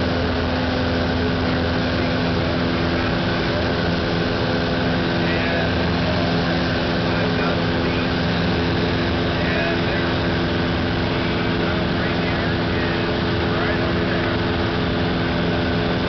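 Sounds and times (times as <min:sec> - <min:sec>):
propeller plane engine drone: 0:00.0 - 0:16.0.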